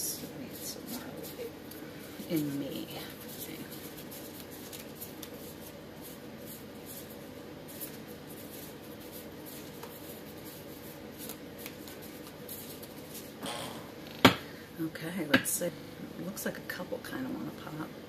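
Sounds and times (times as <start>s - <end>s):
faint steady hum: 0.0s - 18.0s
cards being shuffled: 0.5s - 13.4s.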